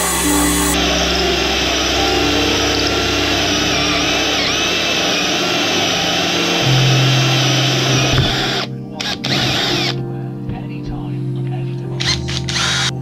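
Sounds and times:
drill hole saw cutting wood: 0:00.0 - 0:02.0.

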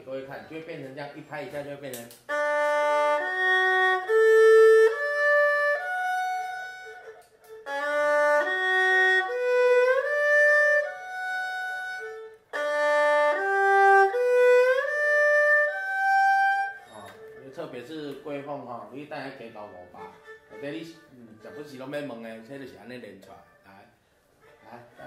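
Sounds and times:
erhu bowed arpeggio: 0:02.2 - 0:22.5.

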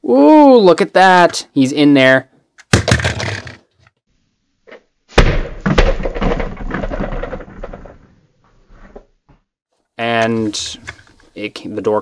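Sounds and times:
plastic clattering: 0:02.6 - 0:03.7, 0:05.7 - 0:08.1
plastic toy slammed on table: 0:02.7 - 0:03.6, 0:05.1 - 0:08.0.

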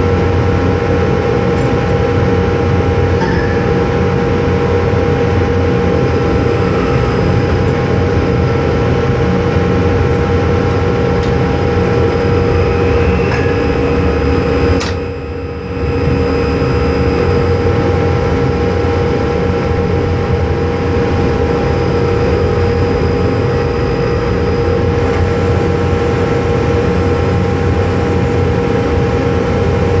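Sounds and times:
machinery drone with whine: 0:00.0 - 0:30.0
sharp click: 0:14.8 - 0:15.0.

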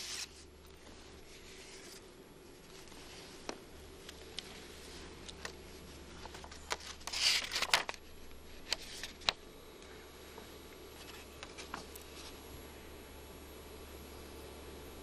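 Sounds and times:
paper letter rustling: 0:00.0 - 0:02.0, 0:02.6 - 0:09.4.

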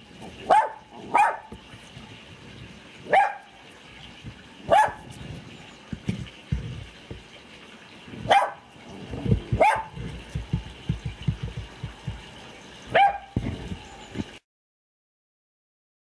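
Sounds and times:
dog barking: 0:00.4 - 0:01.6, 0:03.1 - 0:03.5, 0:04.6 - 0:05.1, 0:08.2 - 0:08.7, 0:09.3 - 0:10.6, 0:12.9 - 0:13.6
low thuds and rumbling: 0:05.0 - 0:07.3, 0:09.0 - 0:12.4, 0:13.3 - 0:14.3.

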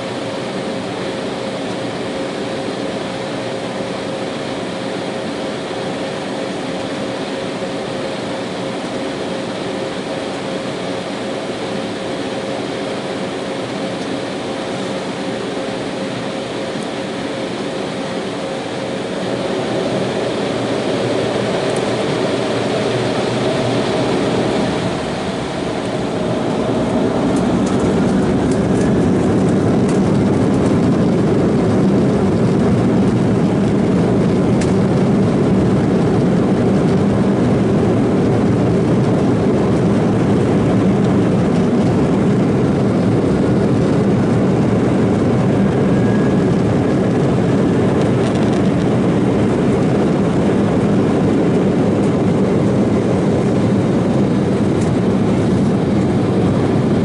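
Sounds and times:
jet engines at takeoff thrust: 0:00.0 - 0:57.0
takeoff roll rumble: 0:19.2 - 0:57.0.

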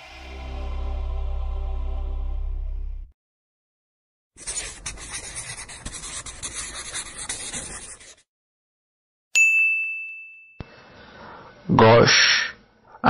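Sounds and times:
marker writing on a board: 0:04.4 - 0:08.3
bell ding: 0:09.4 - 0:10.6.

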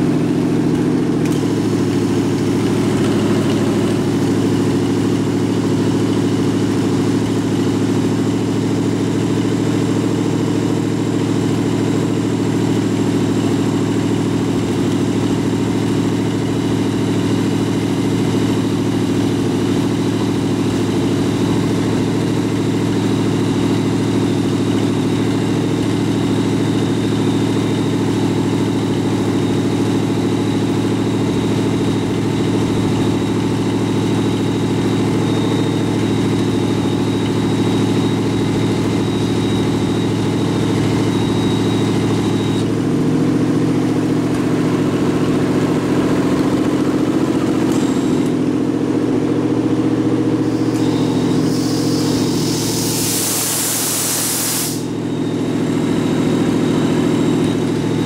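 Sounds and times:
engine idling: 0:00.0 - 0:58.0
air compressor pumping: 0:50.3 - 0:58.0.

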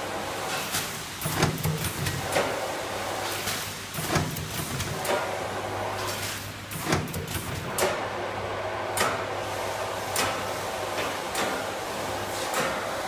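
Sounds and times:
packaging machine hum: 0:00.0 - 0:13.0
machine clicks and knocks: 0:00.6 - 0:02.6, 0:03.3 - 0:05.3, 0:06.1 - 0:08.1, 0:08.9 - 0:09.4, 0:10.1 - 0:11.7.

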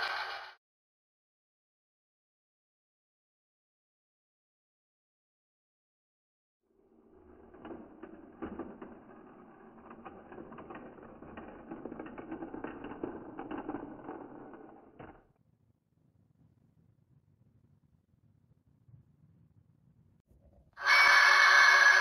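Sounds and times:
model train wheels rumbling: 0:06.8 - 0:15.2, 0:20.8 - 0:22.0
wheels clicking over rail gaps: 0:06.9 - 0:15.2.

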